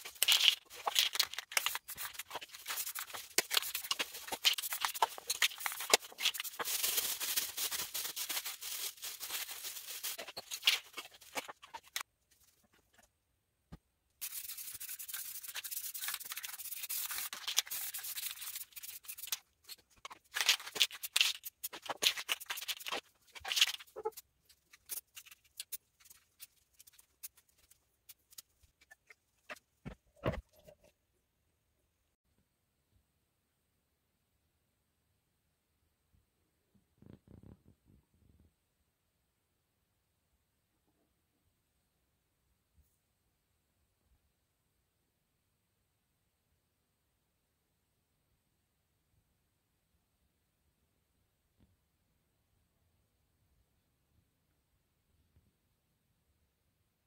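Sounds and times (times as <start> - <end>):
spray paint can hissing: 14.2 - 19.3.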